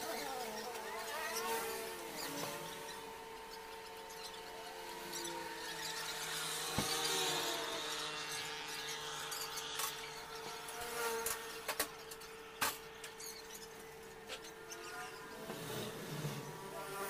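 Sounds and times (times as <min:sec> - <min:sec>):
steady mechanical hum: 0:00.0 - 0:17.0
faint squeaks: 0:12.0 - 0:16.8.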